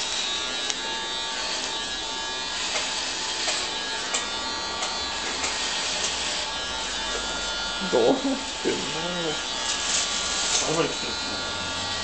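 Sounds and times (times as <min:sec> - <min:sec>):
electric hair clippers buzzing: 0:00.0 - 0:12.0.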